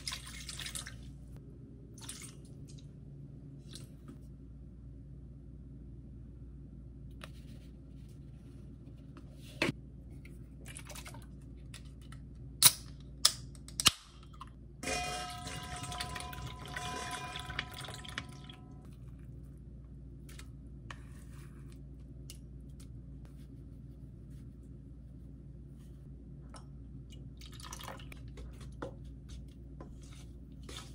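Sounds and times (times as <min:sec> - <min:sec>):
steady ringing tones: 0:14.8 - 0:18.9
soda pouring into metal bowl: 0:14.9 - 0:18.8.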